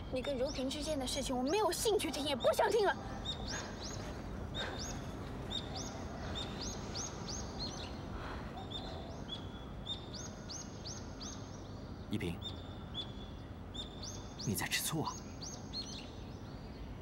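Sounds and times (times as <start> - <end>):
birds chirping: 0.0 - 17.0
low background hiss: 0.0 - 17.0.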